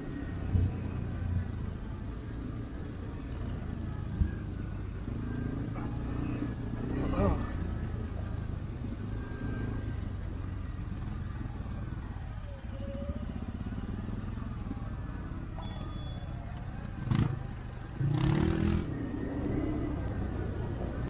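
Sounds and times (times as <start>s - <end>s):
engine running at low revs: 0.0s - 21.0s.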